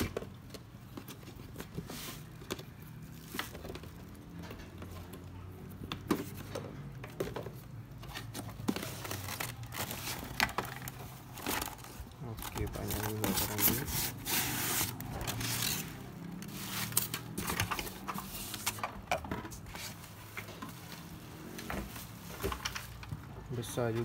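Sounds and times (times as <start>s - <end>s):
cardboard rustling and scraping: 0.0s - 24.0s
packaging crinkling: 8.2s - 18.8s.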